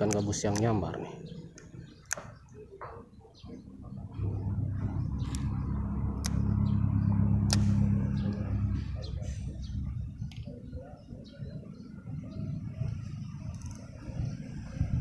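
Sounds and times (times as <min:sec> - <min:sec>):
sharp clicks: 0:00.0 - 0:00.8, 0:01.5 - 0:02.6, 0:04.8 - 0:06.8, 0:07.4 - 0:08.5, 0:10.2 - 0:10.5, 0:13.4 - 0:14.1
vehicle engine passing: 0:03.6 - 0:15.0.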